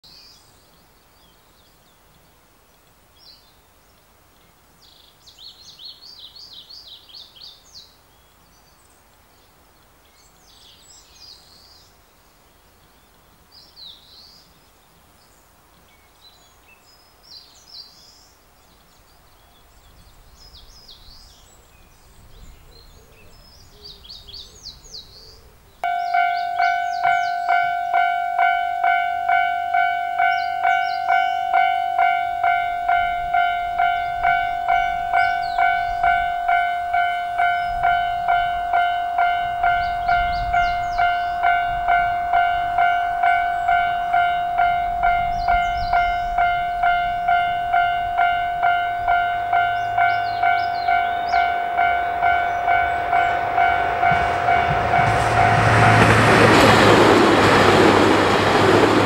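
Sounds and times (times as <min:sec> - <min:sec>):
small birds chirping: 0:00.0 - 0:54.5
level crossing warning bell: 0:25.8 - 0:59.0.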